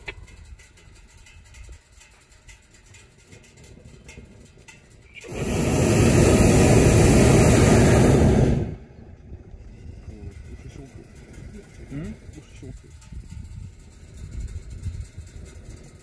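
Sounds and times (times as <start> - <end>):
propane burner roaring: 3.6 - 16.0.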